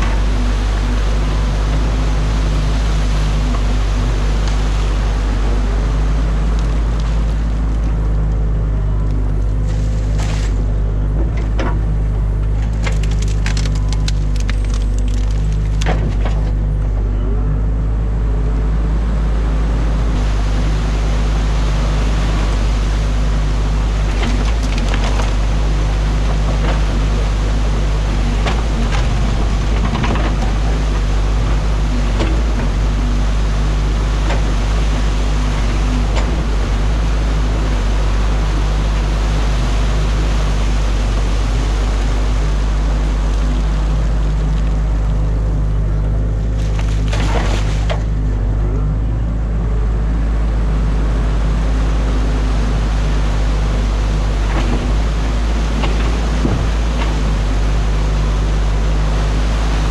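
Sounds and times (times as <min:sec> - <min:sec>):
excavator diesel engine running: 0:00.0 - 0:59.9
water rushing: 0:00.0 - 0:59.9
branches and bucket cracking: 0:12.5 - 0:16.6, 0:23.3 - 0:32.9, 0:46.4 - 0:48.2.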